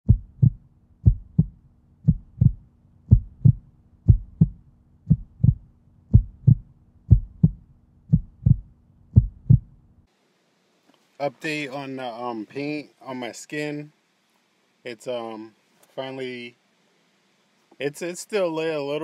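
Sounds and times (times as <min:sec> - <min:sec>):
heartbeat thumps: 0:00.0 - 0:09.8
faint low hum: 0:00.1 - 0:19.0.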